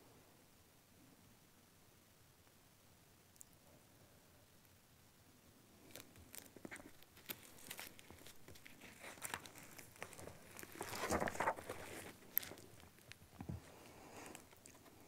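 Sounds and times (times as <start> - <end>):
crinkling and rustling: 5.8 - 15.0.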